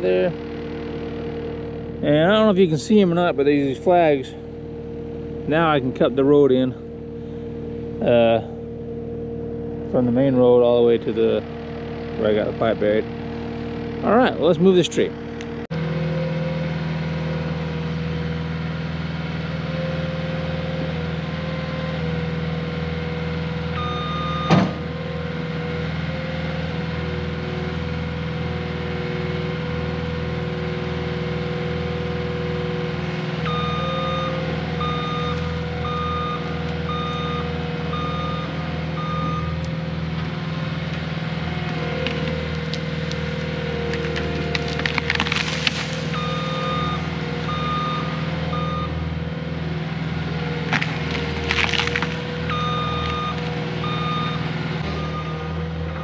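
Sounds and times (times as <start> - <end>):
diesel engine running: 0.0 - 56.0
backup alarm beeping: 23.8 - 24.6, 33.4 - 39.6, 46.1 - 49.0, 52.5 - 55.6
tree cracking and snapping: 42.0 - 46.8, 50.6 - 53.6.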